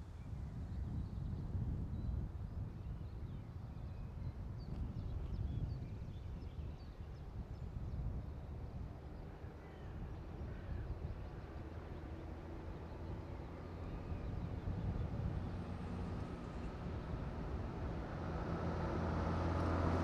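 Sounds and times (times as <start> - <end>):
diesel locomotive engine drone: 8.1 - 20.0.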